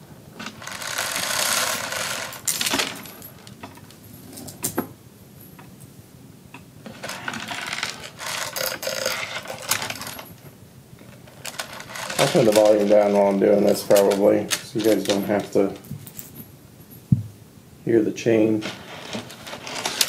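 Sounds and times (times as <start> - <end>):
metal chain rattling: 0.6 - 4.8, 7.0 - 10.4, 11.2 - 17.0.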